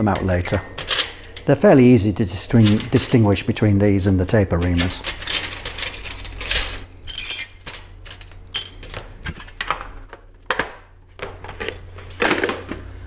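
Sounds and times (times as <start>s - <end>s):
metal pins clinking on metal tray: 0.0s - 1.6s, 2.5s - 3.3s, 4.6s - 9.0s.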